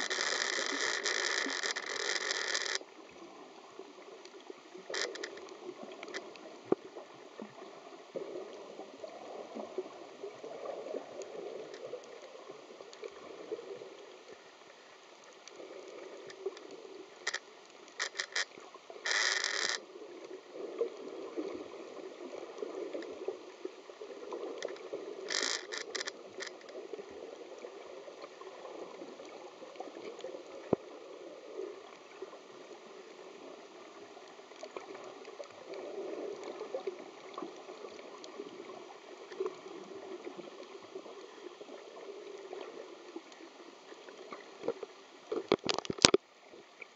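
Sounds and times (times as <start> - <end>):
loud crackle bursts: 0.0 - 2.8, 4.9 - 5.4, 17.2 - 17.4, 18.0 - 19.8, 24.6 - 26.7
muffled underwater water noise: 0.0 - 46.9.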